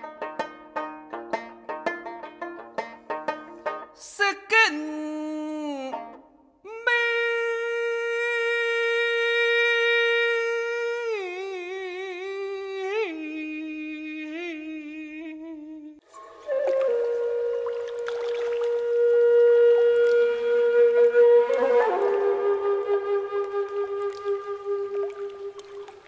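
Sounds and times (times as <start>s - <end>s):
voice humming slow melody: 16.6s - 20.6s.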